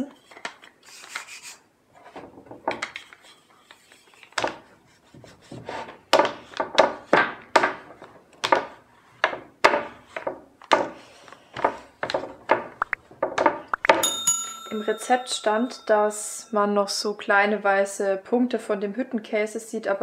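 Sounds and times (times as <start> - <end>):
rolling pin on dough: 2.0 - 14.0.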